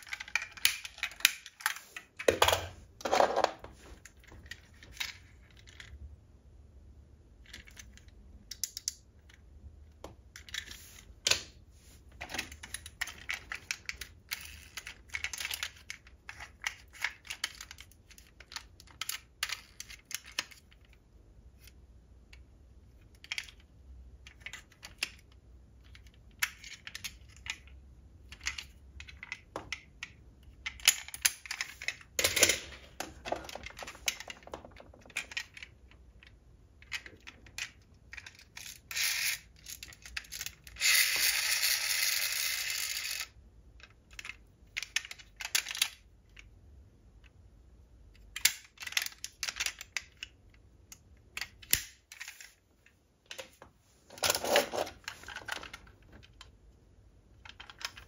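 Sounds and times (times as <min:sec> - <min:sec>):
metal model car clicking: 0:36.8 - 0:43.3.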